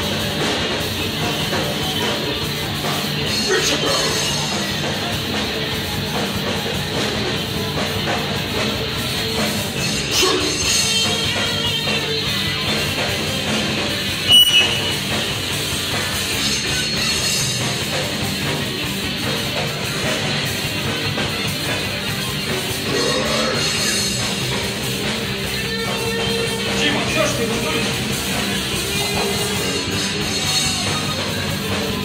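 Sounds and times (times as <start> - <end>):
metal band playing live: 0.0 - 32.0.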